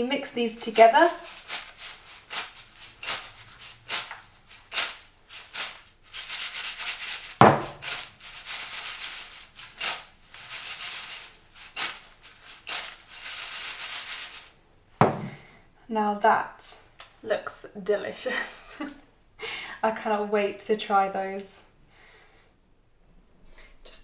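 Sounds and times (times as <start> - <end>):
chips rattling in clay bowl: 0.6 - 14.6.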